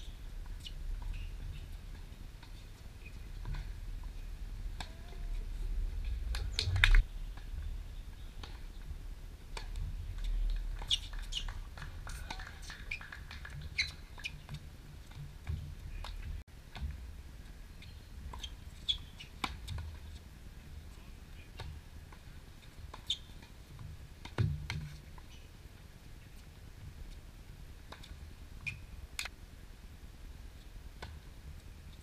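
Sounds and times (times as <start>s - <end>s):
wind rumble on microphone: 0.0s - 12.1s.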